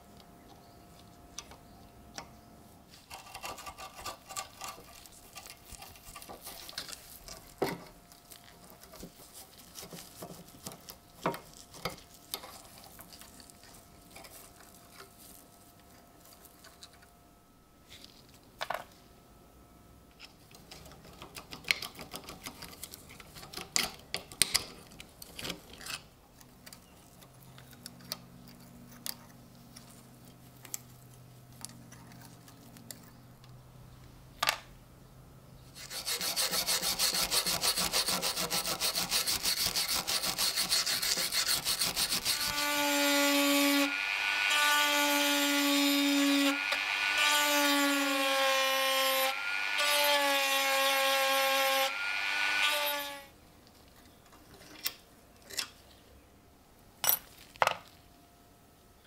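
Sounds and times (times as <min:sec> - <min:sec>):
rotary tool grinding metal: 0:35.8 - 0:53.2.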